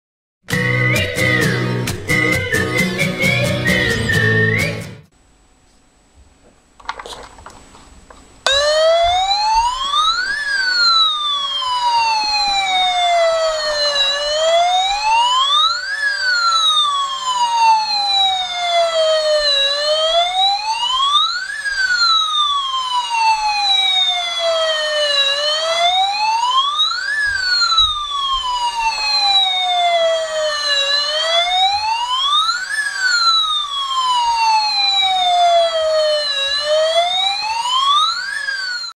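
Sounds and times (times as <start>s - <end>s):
toy siren wailing: 8.5s - 38.9s.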